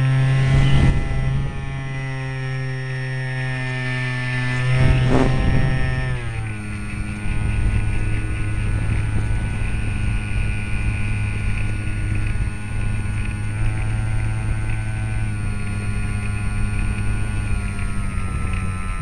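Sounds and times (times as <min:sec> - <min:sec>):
model airplane motor running: 0:00.0 - 0:19.0
wind and vibration rumble: 0:00.0 - 0:19.0.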